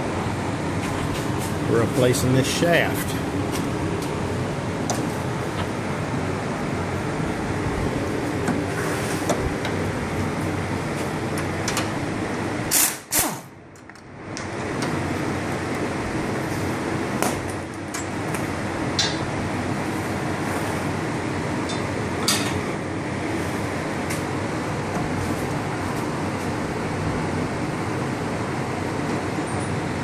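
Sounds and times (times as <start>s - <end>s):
air impact wrench burst: 12.7s - 13.5s.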